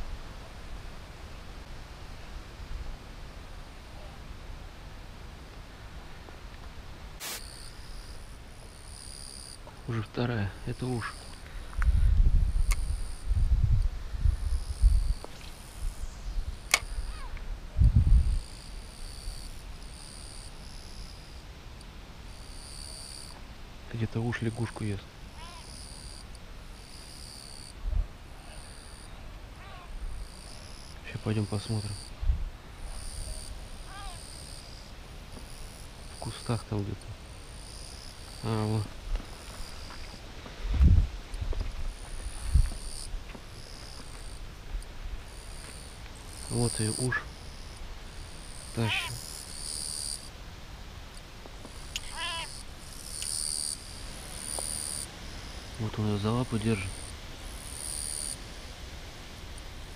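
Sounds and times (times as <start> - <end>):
insects buzzing: 0.0 - 59.9
frog screaming: 16.8 - 17.4, 25.3 - 26.1, 28.4 - 30.4, 33.0 - 34.8, 48.5 - 50.2, 51.9 - 53.8.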